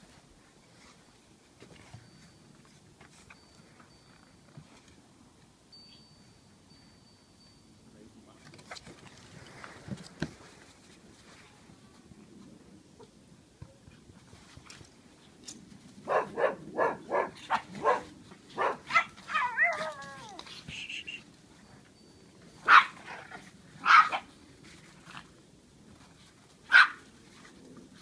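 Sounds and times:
small dogs barking: 0:16.0 - 0:20.4, 0:22.6 - 0:24.3, 0:26.7 - 0:27.0
dog yelp falling in pitch: 0:18.9 - 0:20.4.

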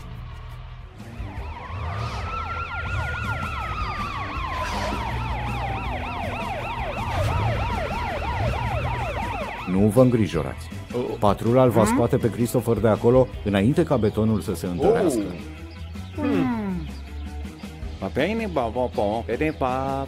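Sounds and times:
cartoon siren wail: 0:01.4 - 0:09.8.

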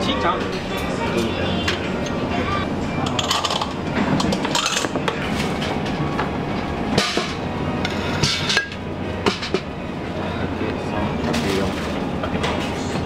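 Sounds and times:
kitchen noise: 0:00.0 - 0:06.2.

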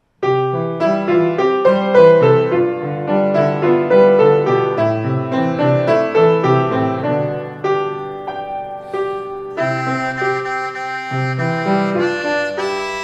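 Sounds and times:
lively piano accompaniment: 0:00.2 - 0:13.0.

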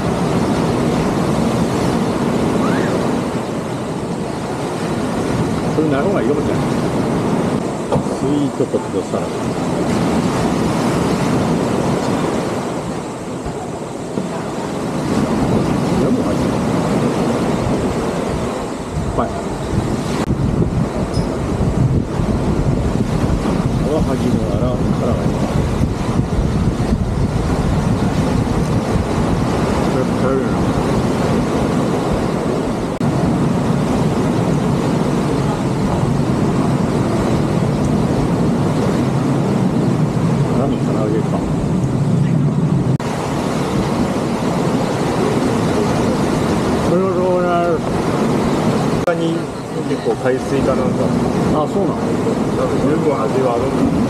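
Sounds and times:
rushing outdoor ambience: 0:00.0 - 0:54.0
wind buffeting microphone: 0:00.0 - 0:54.0.

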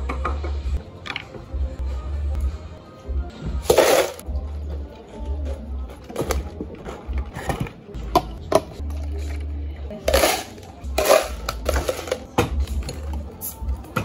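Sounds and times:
cups and bottles clinking: 0:06.1 - 0:14.0
ice cubes rattling into cups: 0:10.0 - 0:12.3.

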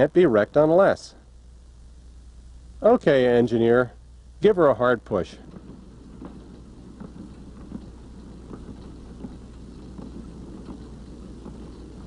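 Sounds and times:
faint low hum: 0:00.0 - 0:12.0
film soundtrack crackle: 0:04.2 - 0:12.0.

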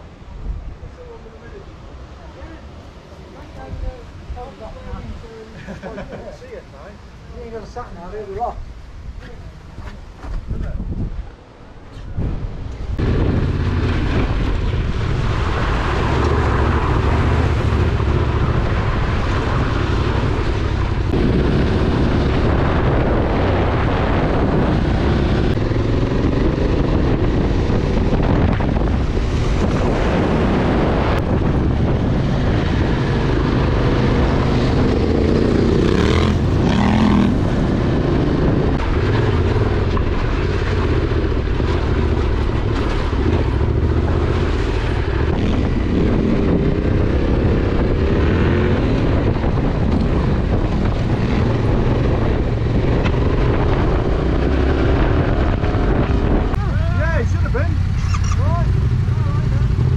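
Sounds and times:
wind noise on microphone: 0:07.4 - 0:59.9.

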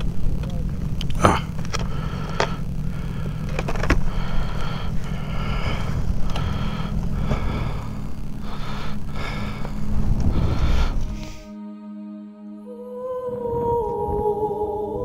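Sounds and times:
motorcycles idling: 0:00.0 - 0:11.5
wind buffeting microphone: 0:02.7 - 0:11.2.

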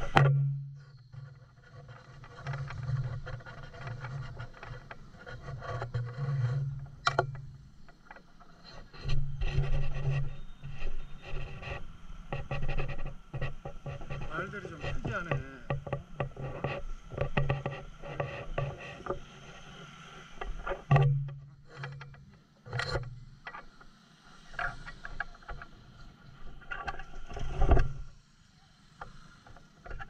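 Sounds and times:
wind noise on microphone: 0:08.6 - 0:21.2.

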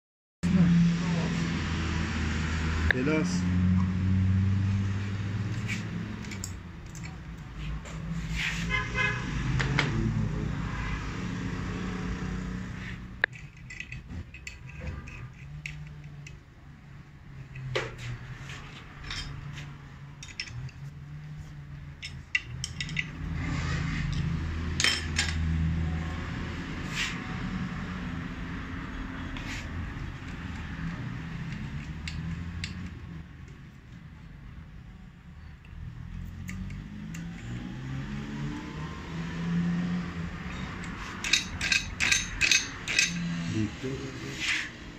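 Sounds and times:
steel parts clicking and clinking: 0:06.2 - 0:07.5, 0:13.2 - 0:16.5, 0:18.7 - 0:19.6, 0:20.2 - 0:21.0, 0:21.8 - 0:23.3, 0:30.1 - 0:33.1, 0:40.5 - 0:43.4.

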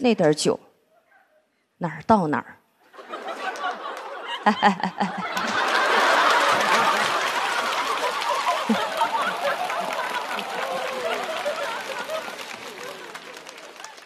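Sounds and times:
audience laughing: 0:02.8 - 0:14.0
audience applause: 0:03.0 - 0:14.0.

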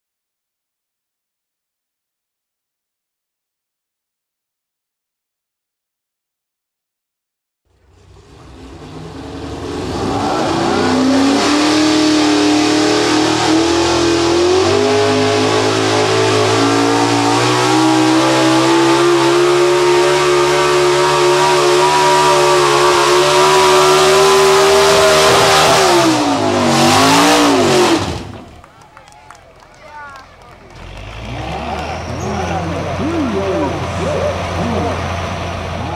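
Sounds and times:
pickup truck engine at high revs: 0:07.8 - 0:28.7, 0:30.5 - 0:35.9.

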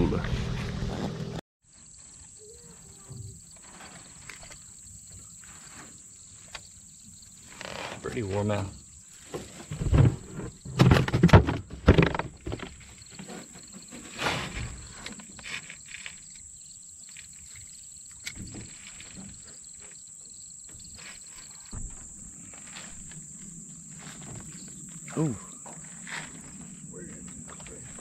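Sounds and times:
insect chorus drone: 0:01.7 - 0:28.0.

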